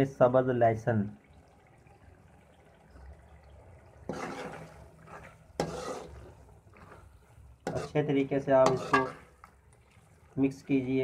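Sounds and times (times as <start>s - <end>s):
spatula scraping metal pan: 4.1s - 9.4s.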